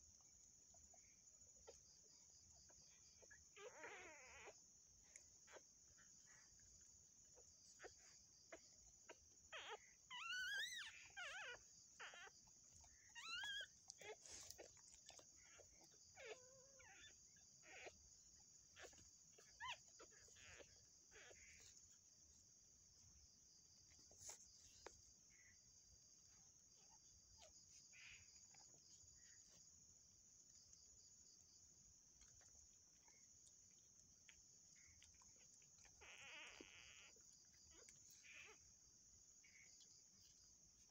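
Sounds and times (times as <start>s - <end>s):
crickets trilling: 0.0s - 40.9s
insect pulsing: 0.9s - 29.7s, 30.5s - 38.8s
dog squealing: 3.2s - 4.6s, 7.8s - 18.0s, 18.7s - 21.8s, 35.8s - 38.6s.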